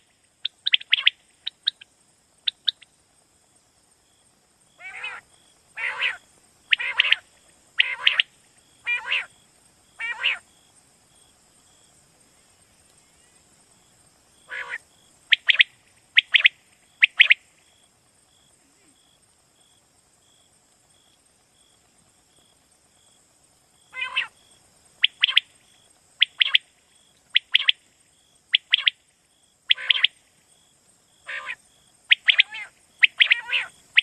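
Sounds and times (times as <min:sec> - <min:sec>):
quail calling: 0:04.8 - 0:09.3, 0:10.0 - 0:10.4, 0:14.5 - 0:17.4, 0:23.9 - 0:24.4, 0:25.0 - 0:25.5, 0:29.7 - 0:30.2, 0:31.3 - 0:34.0.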